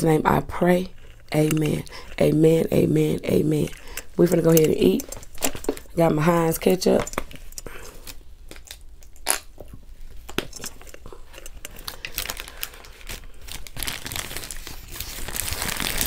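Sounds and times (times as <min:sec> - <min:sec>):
paper wrapper crinkling: 0:07.0 - 0:16.0
paper and fries crackling: 0:11.2 - 0:16.0.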